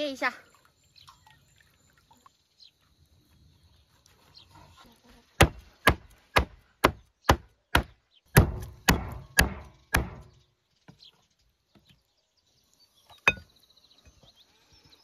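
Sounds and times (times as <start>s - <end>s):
cleaver chopping on wooden board: 5.4s - 10.3s.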